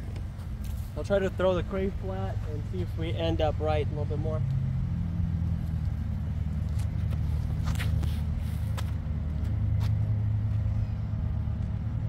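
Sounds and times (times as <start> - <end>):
steady low rumble: 0.0 - 12.0
footsteps on concrete: 6.5 - 10.8.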